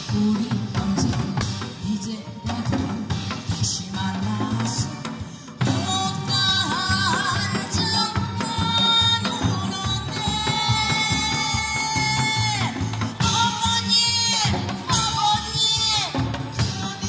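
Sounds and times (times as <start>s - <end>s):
woman singing through microphone: 0.0s - 17.0s.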